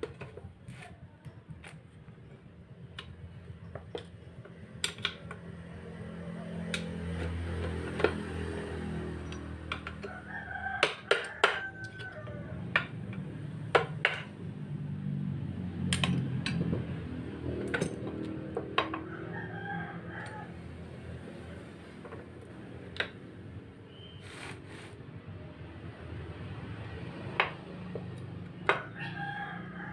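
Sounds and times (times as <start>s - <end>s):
rooster crowing: 9.9s - 13.0s, 18.9s - 20.8s, 28.7s - 29.9s.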